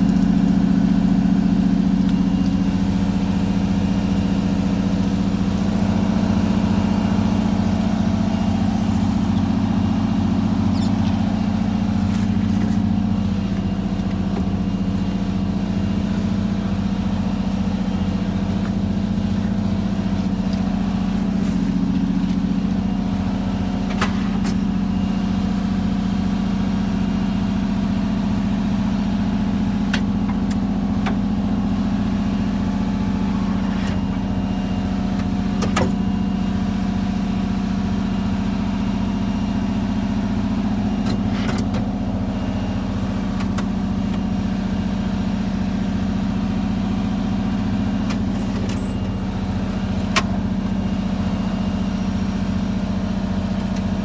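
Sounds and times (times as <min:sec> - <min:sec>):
engine idling: 0:00.0 - 0:54.0.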